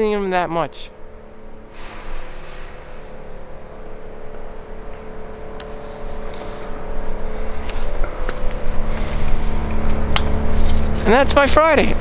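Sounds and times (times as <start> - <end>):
road traffic engine hum: 0.9 - 12.0
vehicle approaching rumble: 0.9 - 12.0.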